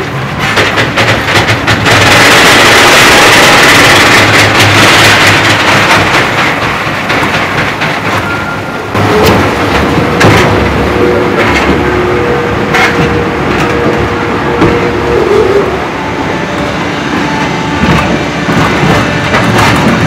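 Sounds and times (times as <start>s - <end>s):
train car running in tunnel: 0.0s - 20.0s
knocks: 0.4s - 10.8s, 17.3s - 20.0s.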